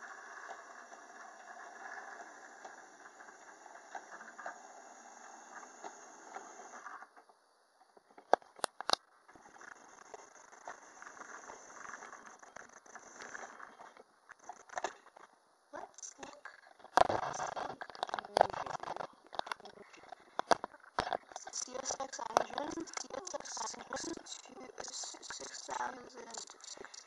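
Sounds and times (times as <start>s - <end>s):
sharp clicks: 15.9s - 27.0s.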